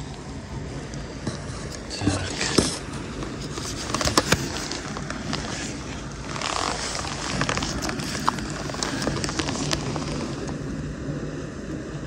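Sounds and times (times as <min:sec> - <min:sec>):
fishing tackle clicks and scraping: 0:01.4 - 0:10.6.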